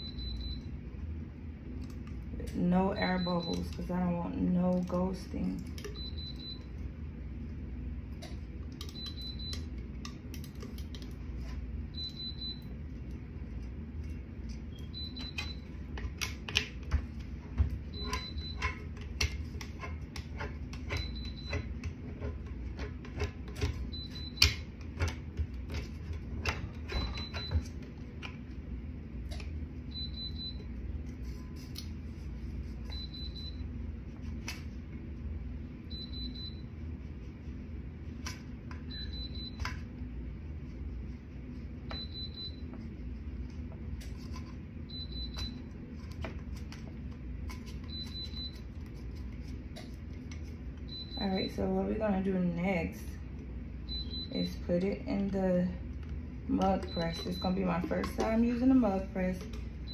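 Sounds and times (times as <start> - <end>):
heat press high beep: 0.0 - 0.7, 3.0 - 3.7, 11.9 - 12.7, 14.7 - 15.7, 17.9 - 18.8, 20.9 - 21.7, 23.9 - 24.6, 29.9 - 30.7, 32.9 - 33.7, 35.9 - 36.7, 38.8 - 39.7, 41.9 - 42.7, 44.9 - 45.7, 50.9 - 51.6, 53.9 - 54.6, 56.7 - 58.0.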